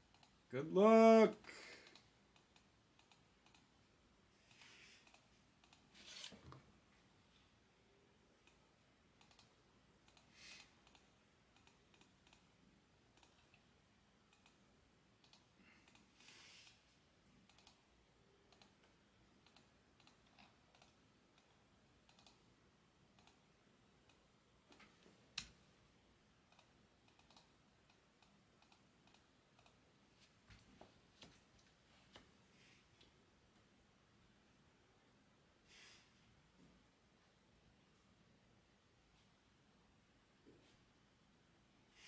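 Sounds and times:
keyboard and mouse clicks: 0.0 - 0.4, 1.8 - 3.8, 4.4 - 6.6, 8.4 - 13.6, 14.3 - 14.6, 15.2 - 16.8, 17.4 - 17.9, 18.5 - 22.5, 23.1 - 25.6, 26.4 - 29.9.

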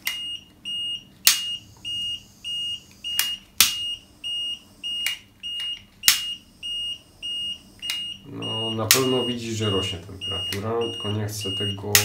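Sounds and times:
high alarm beeps: 0.1 - 12.0
sharp clicks: 2.9 - 3.9, 8.9 - 9.1.

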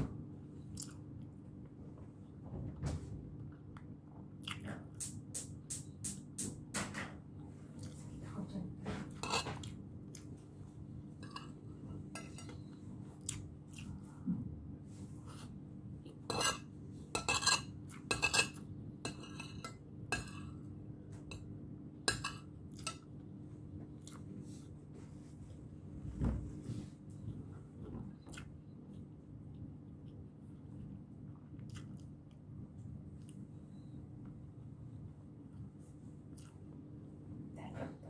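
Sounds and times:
cutlery scraping a ceramic plate: 9.1 - 9.6, 11.2 - 12.6, 16.3 - 20.6.

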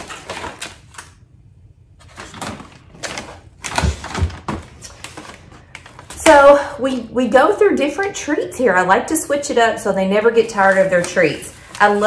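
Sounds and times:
plastic bag crinkling: 0.0 - 1.2.

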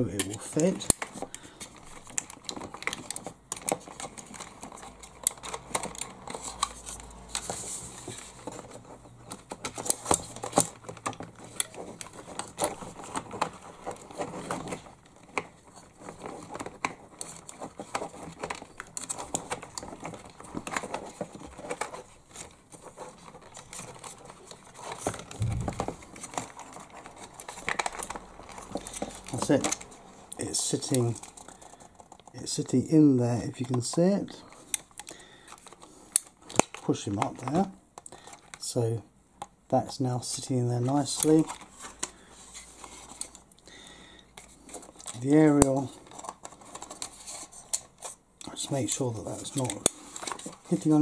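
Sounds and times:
rustling of wires: 0.0 - 39.0, 39.8 - 51.0
soft low bump: 25.4 - 25.9.

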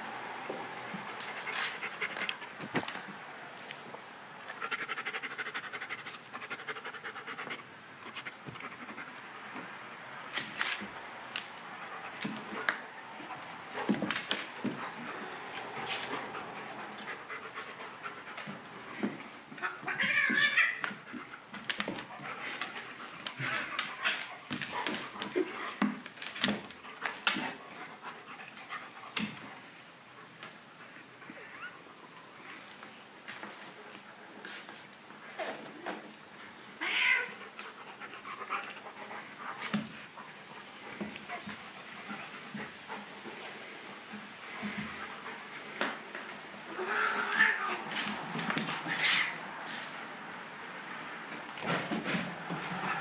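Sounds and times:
dog panting hard: 4.5 - 9.2, 14.6 - 19.2.

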